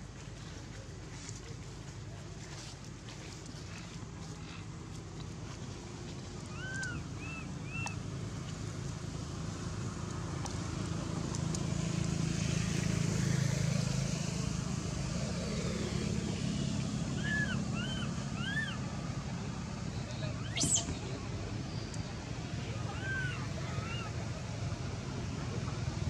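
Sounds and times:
passing motor vehicle rumble: 0:03.2 - 0:26.0
short high arched calls: 0:20.4 - 0:21.2.

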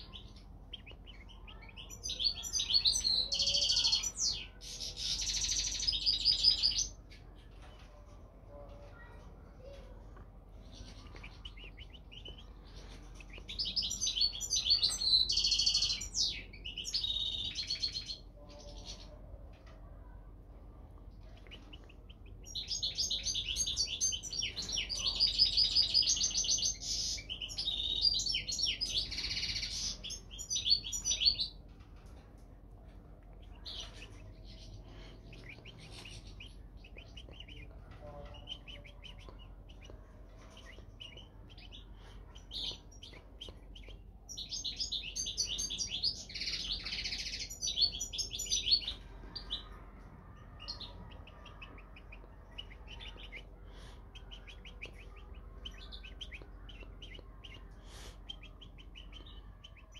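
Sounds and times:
bird twittering song: 0:00.0 - 0:07.4, 0:10.6 - 0:19.2, 0:21.2 - 0:32.2, 0:33.3 - 0:49.8, 0:50.5 - 0:59.9
faint bird chirps: 0:00.0 - 0:07.9, 0:33.3 - 0:59.9.

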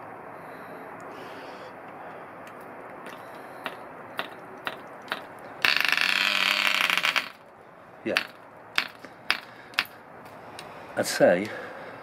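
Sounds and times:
propeller flick clicks: 0:02.5 - 0:07.5.

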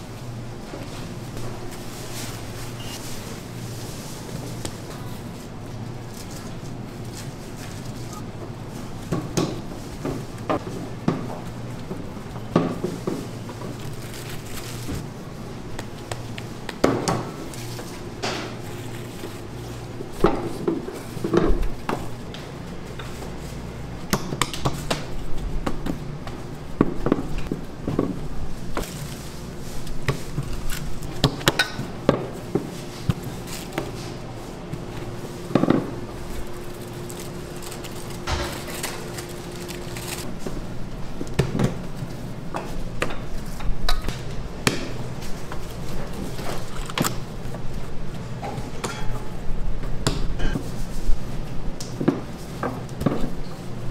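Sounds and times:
steady hum: 0:00.0 - 0:53.9
utensils clattering on steel worktables: 0:35.5 - 0:40.3, 0:48.4 - 0:49.3.

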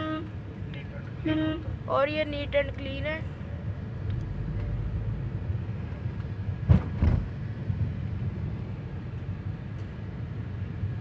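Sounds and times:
car road and engine rumble: 0:00.0 - 0:11.0
short thumps: 0:06.6 - 0:07.4.

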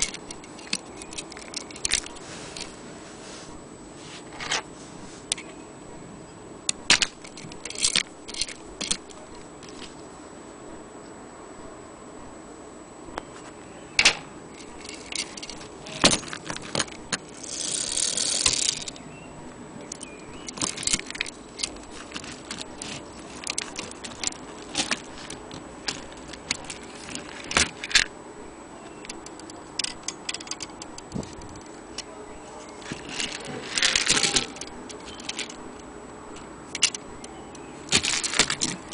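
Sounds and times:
metal parts clicking and tapping: 0:00.0 - 0:02.7, 0:06.7 - 0:09.9, 0:14.0 - 0:19.0, 0:19.8 - 0:28.1, 0:28.9 - 0:32.1, 0:32.7 - 0:38.9
drive chain jangling: 0:14.6 - 0:19.0, 0:19.9 - 0:28.1, 0:32.8 - 0:35.6.

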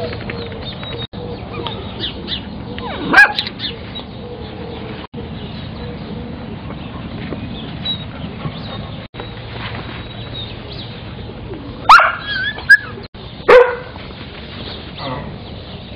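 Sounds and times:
puppies yipping: 0:01.4 - 0:04.1, 0:11.8 - 0:13.9
puppy yelp: 0:02.8 - 0:03.5, 0:11.9 - 0:13.9.

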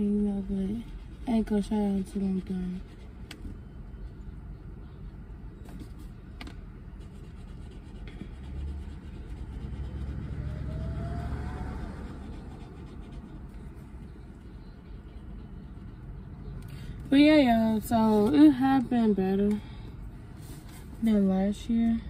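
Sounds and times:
road traffic rumble: 0:00.0 - 0:22.0
vehicle passing with whine: 0:08.1 - 0:17.1.

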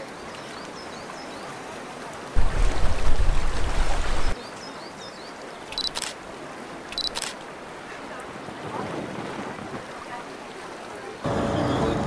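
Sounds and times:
sea water lapping: 0:01.6 - 0:04.4, 0:05.4 - 0:12.0
camera shutter click: 0:05.8 - 0:06.2, 0:06.9 - 0:07.4.

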